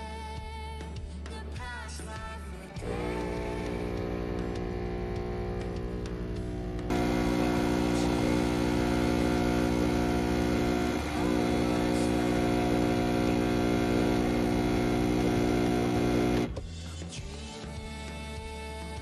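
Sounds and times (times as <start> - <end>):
espresso machine pump humming: 2.8 - 16.6.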